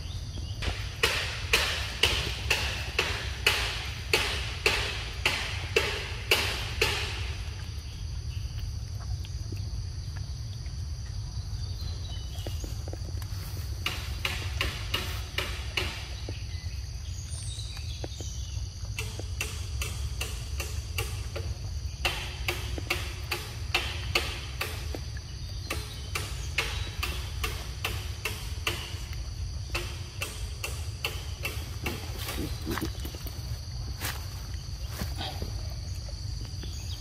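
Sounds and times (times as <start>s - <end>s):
insects droning: 0.0s - 37.0s.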